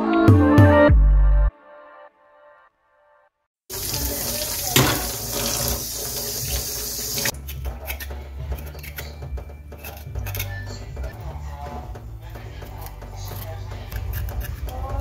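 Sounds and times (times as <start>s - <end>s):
tap running into steel sink: 4.6s - 5.8s
knife scraping ginger skin: 7.3s - 10.7s, 12.6s - 15.0s.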